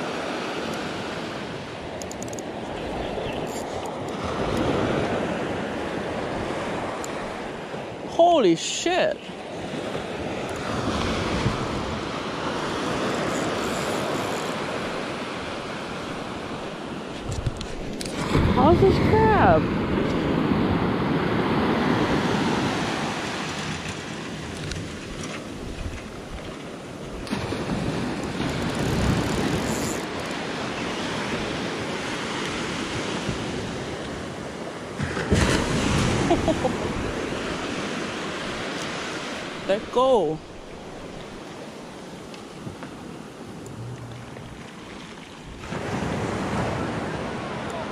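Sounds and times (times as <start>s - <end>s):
surf washing onto beach: 0.0s - 3.0s, 3.6s - 47.9s
wind buffeting microphone: 9.6s - 38.9s.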